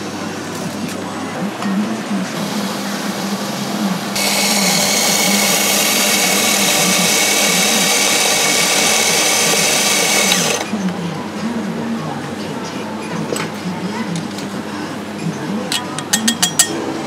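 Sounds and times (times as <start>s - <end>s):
steam wand hissing: 2.4s - 10.6s.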